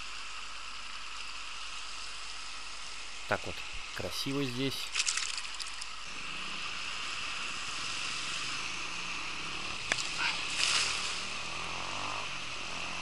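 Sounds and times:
river water burbling: 4.0s - 7.3s, 9.8s - 12.2s
net splashing on water: 4.9s - 5.9s.

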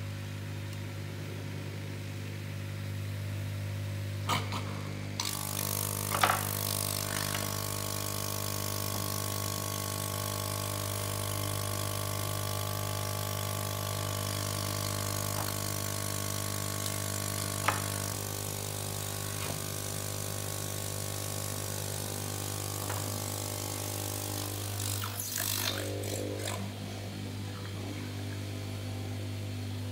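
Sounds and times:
electric air pump humming: 2.4s - 29.9s.

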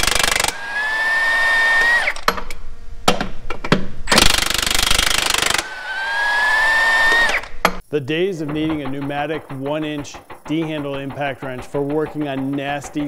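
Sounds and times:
impact wrench hammering and whining: 0.0s - 13.0s
sharp knocks: 8.4s - 13.0s.

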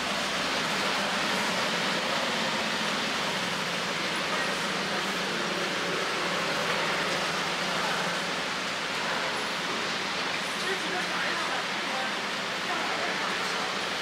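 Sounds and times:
cars idling and moving slowly: 0.0s - 14.0s.

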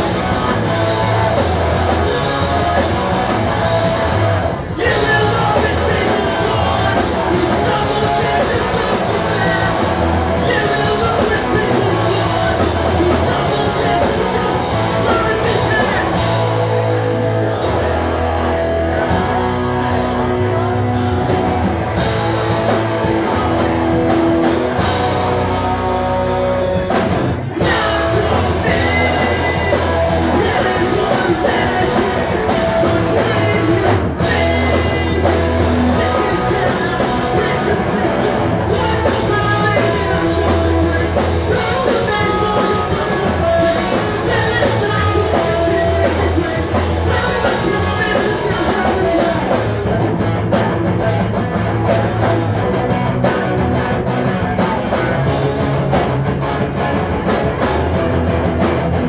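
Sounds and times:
person singing: 0.0s - 20.9s, 27.6s - 50.0s
distorted electric guitars: 0.0s - 59.0s
drums: 0.0s - 59.0s
live pop-punk band: 0.0s - 59.0s.

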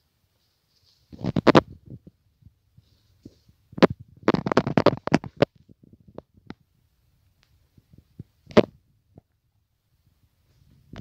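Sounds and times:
moss crackling in hand: 0.4s - 2.1s, 2.7s - 6.6s.

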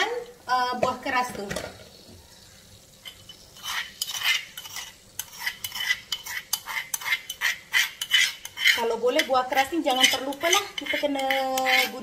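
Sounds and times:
spoon scraping a bowl: 3.0s - 12.0s.

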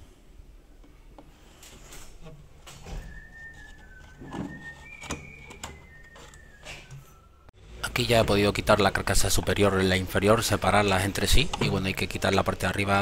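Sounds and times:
high whistle-like tone: 2.8s - 7.6s.

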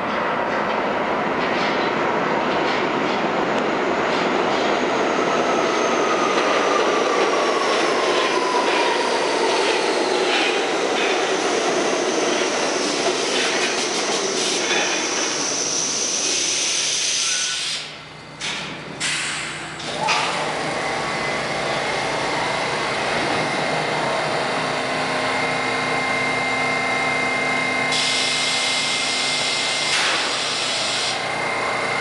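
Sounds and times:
falling train whine: 0.0s - 32.0s
train wheels rumbling on rail: 0.0s - 32.0s
high brake squeal: 11.8s - 18.0s.

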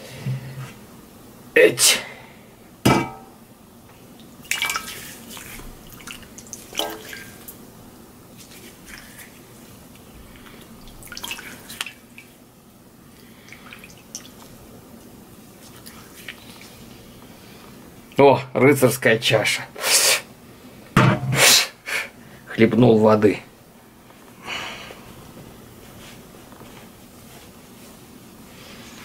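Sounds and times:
water splashing on face: 4.4s - 7.5s, 10.8s - 12.3s.

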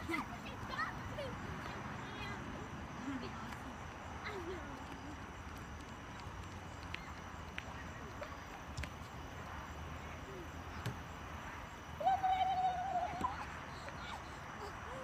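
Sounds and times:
outdoor background noise: 0.0s - 15.0s
girl yelling in the distance: 12.0s - 14.2s.

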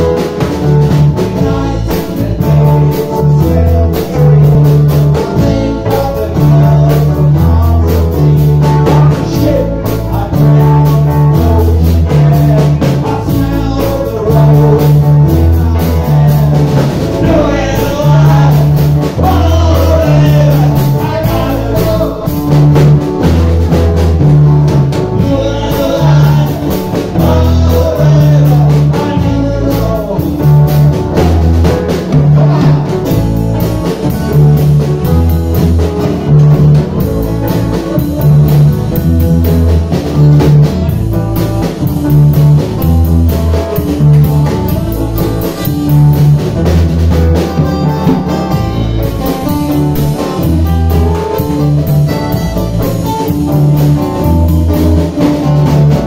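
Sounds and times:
man singing into microphone: 0.0s - 23.1s, 24.9s - 35.4s
bass line: 0.0s - 56.0s
live band playing: 0.0s - 56.0s.

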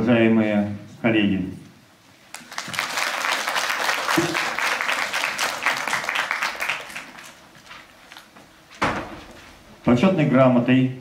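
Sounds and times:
audience applauding: 2.3s - 7.7s.

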